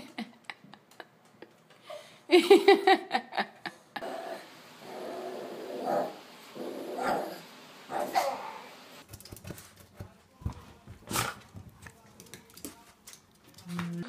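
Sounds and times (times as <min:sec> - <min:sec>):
dogs whining barks: 0:06.8 - 0:08.8
dog sharp bark: 0:07.9 - 0:08.6.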